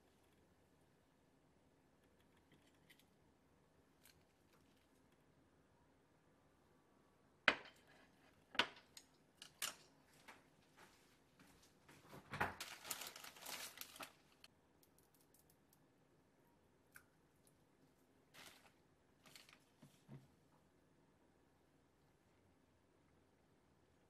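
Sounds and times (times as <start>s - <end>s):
dense crinkly crackling: 12.5s - 14.5s, 18.3s - 20.0s.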